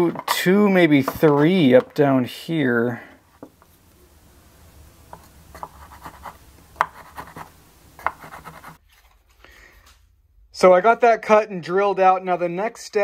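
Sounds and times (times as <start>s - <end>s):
pencil scratching and ticking: 5.1s - 8.8s.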